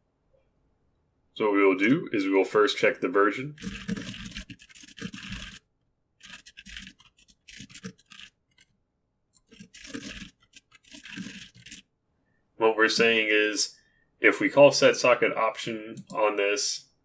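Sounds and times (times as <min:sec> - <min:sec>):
computer keyboard typing: 0:03.5 - 0:05.6, 0:06.2 - 0:08.7, 0:09.4 - 0:11.8.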